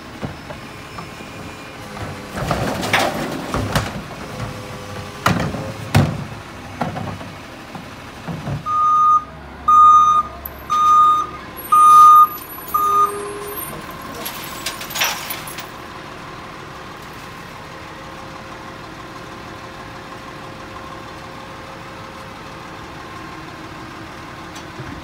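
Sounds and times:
recycling cart banging on truck hopper: 0:01.8 - 0:08.9, 0:10.6 - 0:15.8
truck backup alarm beeping: 0:08.6 - 0:15.0.

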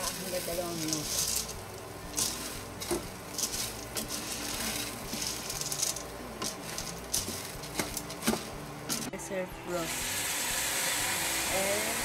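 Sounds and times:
food sizzling in oil: 0:00.0 - 0:09.0, 0:09.8 - 0:12.0
spoon scraping a pot: 0:00.0 - 0:09.0.

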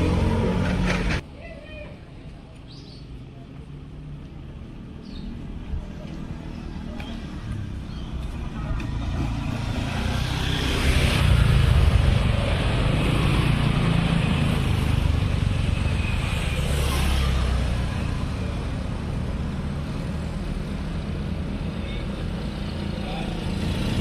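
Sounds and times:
scooters and motorcycles passing: 0:00.0 - 0:01.2, 0:03.6 - 0:24.0.

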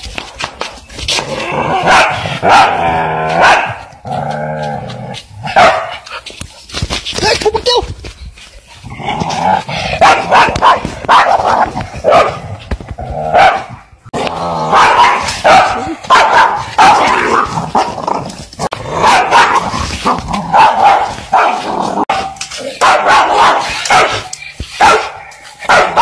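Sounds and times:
dog barking: 0:01.8 - 0:03.9, 0:05.5 - 0:06.0, 0:10.0 - 0:12.5, 0:13.3 - 0:13.7, 0:14.6 - 0:17.9, 0:18.9 - 0:26.0.

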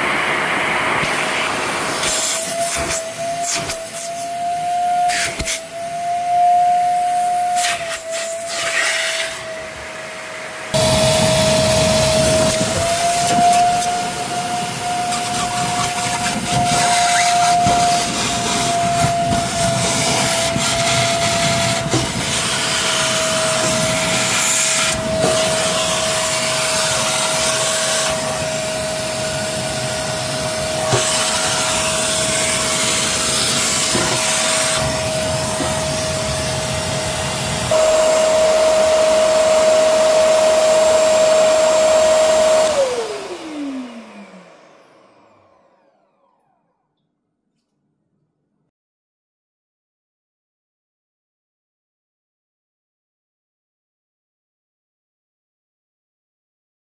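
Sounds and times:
vacuum cleaner motor whine: 0:00.0 - 0:46.9
motor spinning down: 0:09.3 - 0:46.8.

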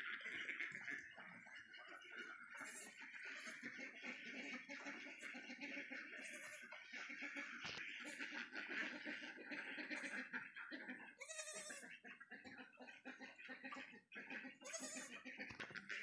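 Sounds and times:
goat kids bleating: 0:02.5 - 0:03.8, 0:04.6 - 0:08.2, 0:11.1 - 0:12.0, 0:14.5 - 0:15.2.

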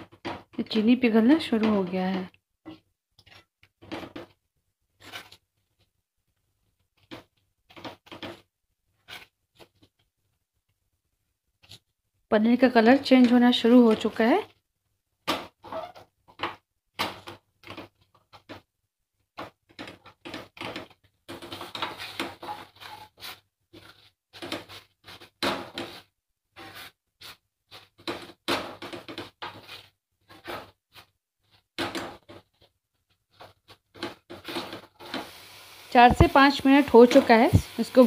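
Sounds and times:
spatula scraping nonstick pan: 0:05.0 - 0:05.8, 0:07.0 - 0:09.9, 0:19.4 - 0:32.6, 0:33.3 - 0:38.0.

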